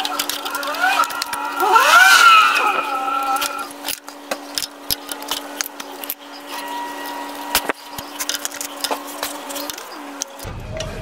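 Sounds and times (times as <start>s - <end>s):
metallic clicks and knocks of tools: 0.0s - 1.5s, 3.3s - 10.5s.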